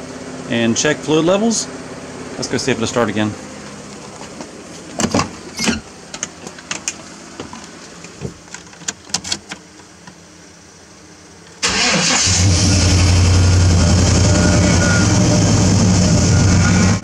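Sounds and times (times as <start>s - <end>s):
clicks and knocks in truck cab: 4.4s - 10.1s
engine starting and idling: 11.6s - 17.0s.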